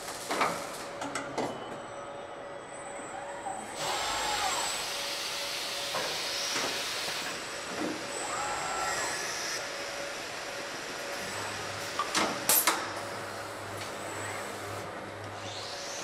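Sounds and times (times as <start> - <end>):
robot servo motors whining: 8.2 - 9.6.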